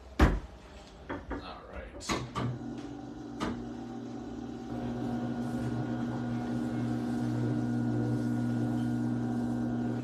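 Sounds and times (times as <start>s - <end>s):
pottery wheel motor humming: 2.5s - 10.0s.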